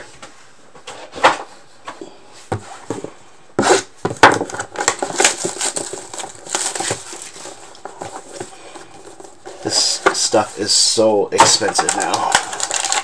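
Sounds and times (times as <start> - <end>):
plastic wrap crinkling: 4.2 - 13.0.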